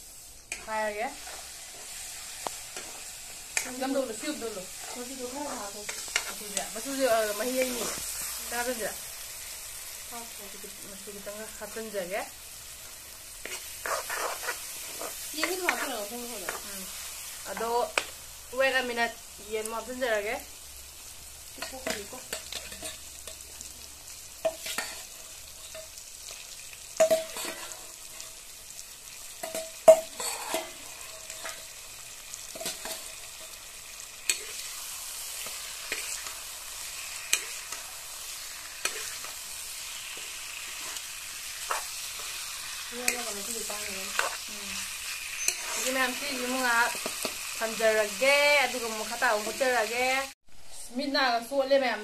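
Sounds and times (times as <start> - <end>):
food sizzling in wok: 0.0 - 52.0
ladle scraping wok: 0.5 - 8.4, 13.4 - 16.7, 27.0 - 28.3, 29.4 - 47.6.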